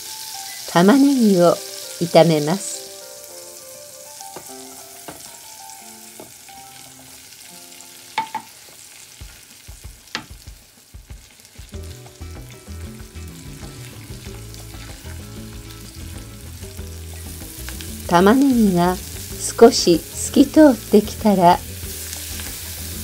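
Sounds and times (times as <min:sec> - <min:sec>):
onion sizzling in a pan: 0:00.0 - 0:23.0.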